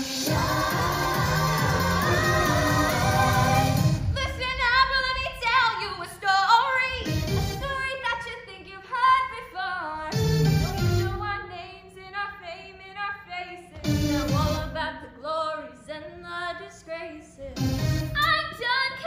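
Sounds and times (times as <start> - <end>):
bass-heavy backing music: 0.0 - 8.4, 10.1 - 11.5, 13.8 - 14.9, 17.4 - 19.0
women singing into microphones: 0.2 - 7.0.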